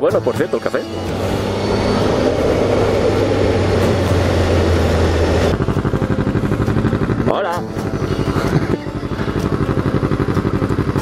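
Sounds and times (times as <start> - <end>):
motorcycle engine: 0.0 - 11.0
wind rush: 1.2 - 5.8.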